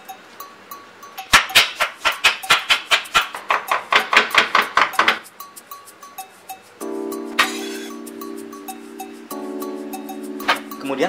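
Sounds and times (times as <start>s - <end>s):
knife chopping on wooden board: 1.4s - 5.2s.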